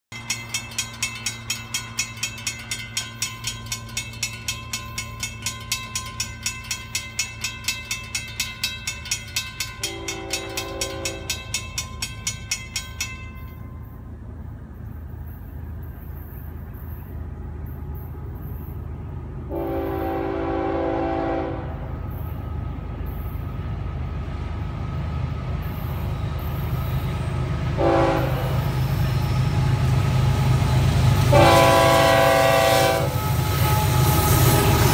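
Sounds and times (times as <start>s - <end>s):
crossing warning bell ringing: 0.1s - 34.9s
locomotive engine rumble: 0.1s - 34.9s
locomotive air horn blasts: 9.8s - 11.4s, 19.5s - 21.8s, 27.8s - 28.7s, 31.3s - 34.9s.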